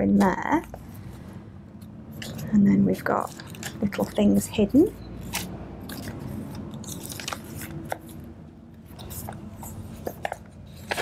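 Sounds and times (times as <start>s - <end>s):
paper pages rustling: 2.1s - 11.0s.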